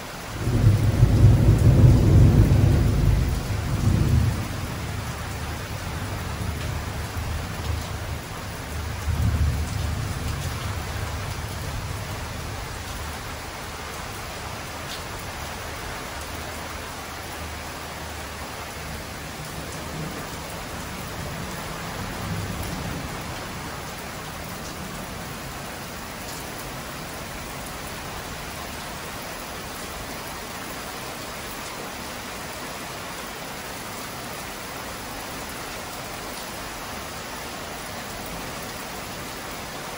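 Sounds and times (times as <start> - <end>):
heavy rain pouring: 0.0 - 39.9
thunder rumbling: 0.4 - 8.2.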